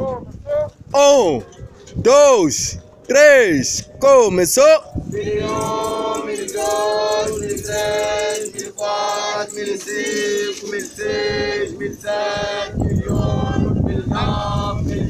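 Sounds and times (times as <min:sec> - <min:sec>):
group singing in unison: 0:05.0 - 0:15.0.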